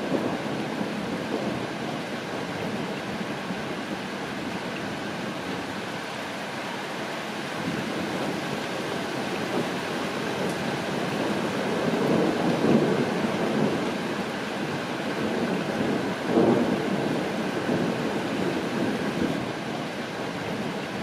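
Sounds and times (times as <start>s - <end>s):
steady rain: 0.0s - 21.0s
thunder rumbling: 7.6s - 19.6s.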